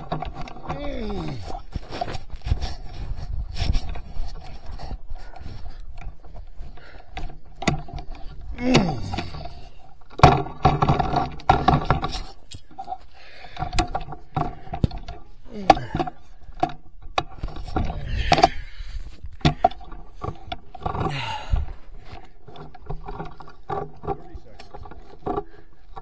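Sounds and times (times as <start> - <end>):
rifle handling clicks and knocks: 0.0 - 3.0, 3.6 - 26.0.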